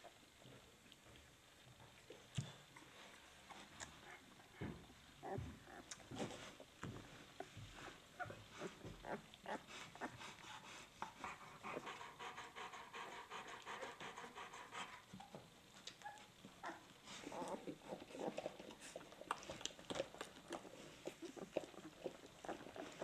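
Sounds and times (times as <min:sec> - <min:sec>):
puppies wet smacking and breathing: 0:00.0 - 0:23.0.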